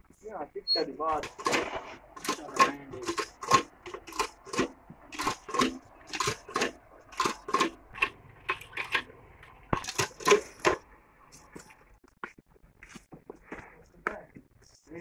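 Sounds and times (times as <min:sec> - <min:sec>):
bull slurping water: 0:01.2 - 0:11.8.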